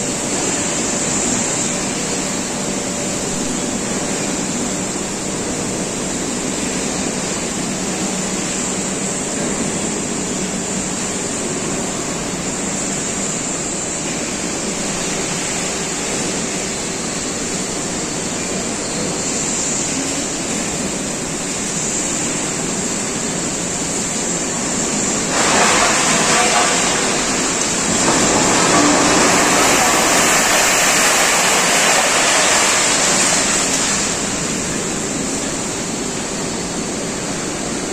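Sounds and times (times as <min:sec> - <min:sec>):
industrial machinery roar: 0:00.0 - 0:37.9
scrap metal pouring onto pile: 0:25.1 - 0:34.2.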